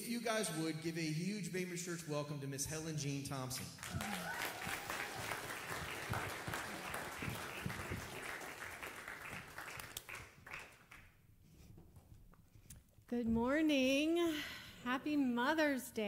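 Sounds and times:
congregation applauding: 0:03.6 - 0:11.1.

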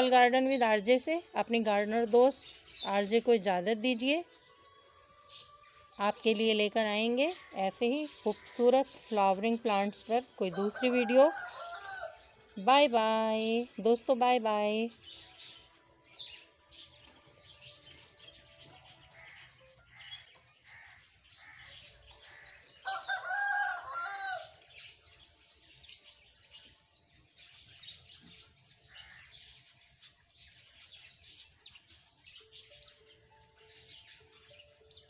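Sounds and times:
small birds chirping: 0:00.0 - 0:35.0
rooster crowing: 0:10.5 - 0:12.2, 0:22.8 - 0:24.5.

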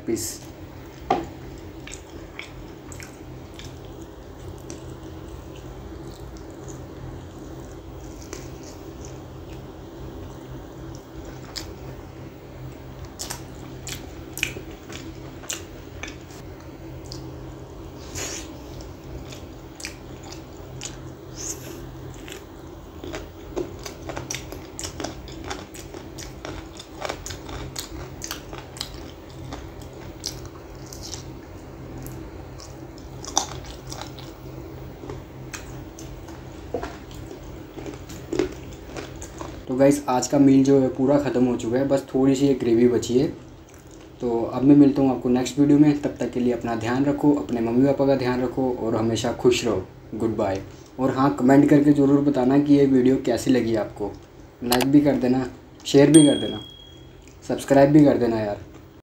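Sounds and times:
chewing with small crunches: 0:00.8 - 0:12.0, 0:12.6 - 0:39.7, 0:43.4 - 0:44.3.

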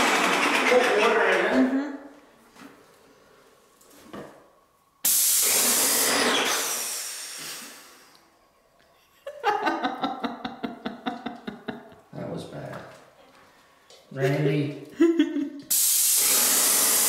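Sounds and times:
pump rhythmic clatter: 0:00.0 - 0:01.2, 0:15.7 - 0:17.0
paint spraying hiss: 0:05.0 - 0:08.1, 0:15.7 - 0:17.0.

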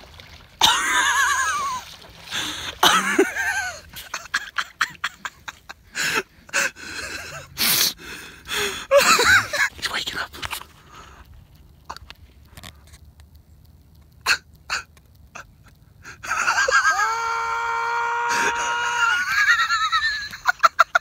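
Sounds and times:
water splashing: 0:00.0 - 0:05.8
people stifling wheezy laughter: 0:00.6 - 0:01.8, 0:02.4 - 0:07.9, 0:08.5 - 0:09.7, 0:14.3 - 0:17.2, 0:18.3 - 0:21.0.

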